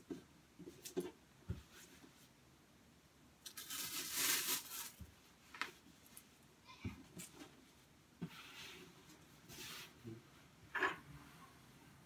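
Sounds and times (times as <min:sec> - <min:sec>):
papery rustling hiss: 0:03.4 - 0:06.4.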